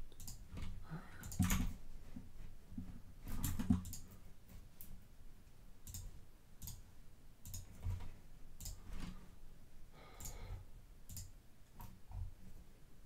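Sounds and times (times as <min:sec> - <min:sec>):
faint sharp clicks: 0:10.2 - 0:10.4, 0:11.1 - 0:12.0.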